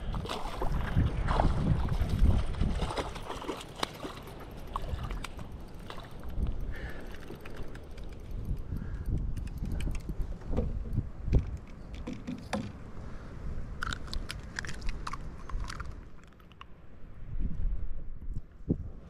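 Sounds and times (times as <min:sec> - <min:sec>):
wind buffeting microphone: 0:00.0 - 0:16.1, 0:17.0 - 0:19.0
fishing reel and line rattling: 0:03.0 - 0:10.4.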